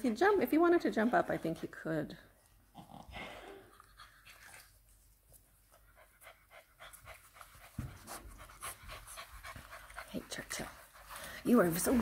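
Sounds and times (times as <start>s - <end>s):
puppy panting: 3.7s - 12.0s.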